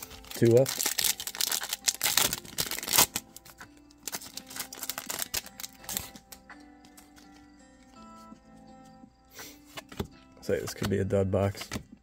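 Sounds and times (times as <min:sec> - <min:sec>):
card pack wrapper tearing: 0:00.0 - 0:06.4
soft background music: 0:00.0 - 0:12.0
cards being flicked through: 0:09.6 - 0:11.9.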